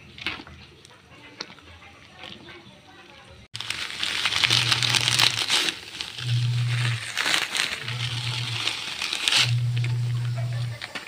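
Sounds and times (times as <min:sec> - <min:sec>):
dry noodles crunching by hand: 0:03.6 - 0:11.0.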